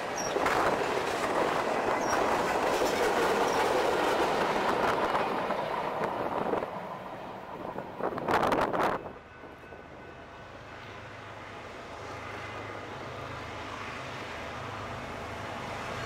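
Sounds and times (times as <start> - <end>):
diesel locomotive engine drone: 0.0 - 16.0.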